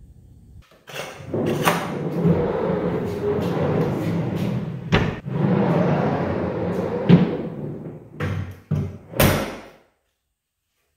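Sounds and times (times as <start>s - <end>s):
drawer rolling rumble: 0.9s - 9.4s.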